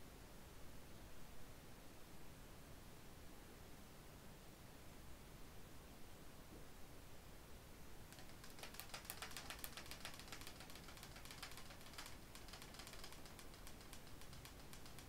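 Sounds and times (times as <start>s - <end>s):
cards being shuffled: 8.1s - 15.0s.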